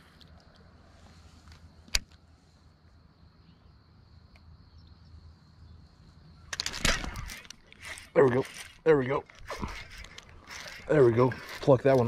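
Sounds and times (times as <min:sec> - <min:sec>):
gear handling rustling and clicks: 0:06.5 - 0:12.0.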